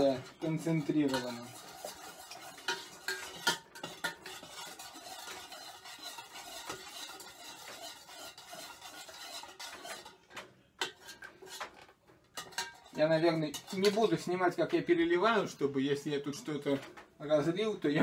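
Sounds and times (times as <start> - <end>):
spoon clinking against pot: 0.0 - 10.2, 10.8 - 11.7, 12.4 - 14.2
metal spoon stirring in pot: 0.0 - 15.4.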